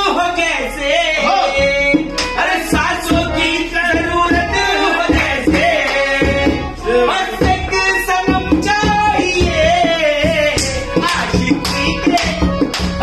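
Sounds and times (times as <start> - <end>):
harmonium melody: 0.0 - 13.0
men singing: 0.0 - 13.0
hand drum beat: 7.3 - 13.0.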